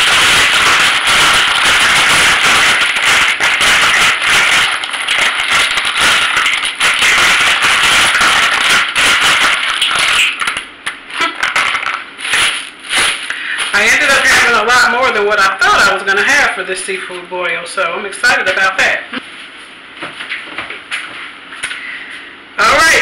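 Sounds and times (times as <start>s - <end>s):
plastic crinkling: 0.0s - 14.7s.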